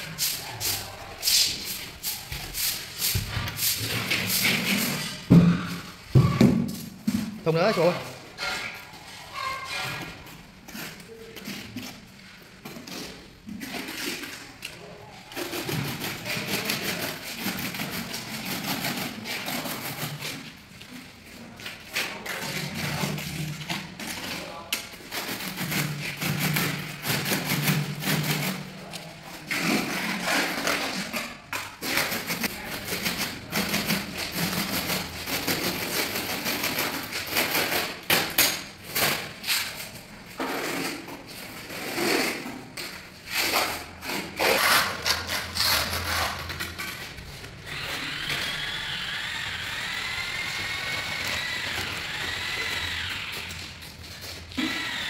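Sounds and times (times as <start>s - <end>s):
trowel scraping cement adhesive: 0.0s - 6.8s, 7.5s - 55.0s.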